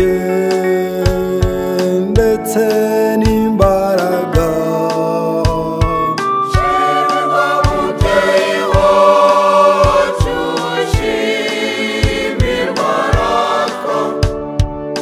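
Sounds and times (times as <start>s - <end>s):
steady drum beat: 1.0s - 15.0s
choir singing a hymn: 6.5s - 14.7s.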